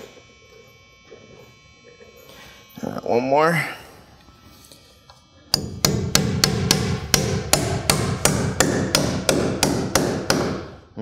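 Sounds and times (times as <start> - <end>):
hammer striking nail into wood: 5.5 - 10.8.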